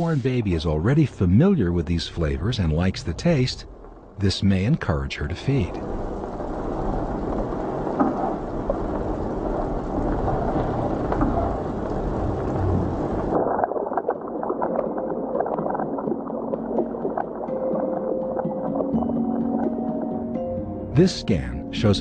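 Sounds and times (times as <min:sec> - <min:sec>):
faint crackles: 0:00.0 - 0:20.4
soft sustained music tones: 0:14.6 - 0:22.0.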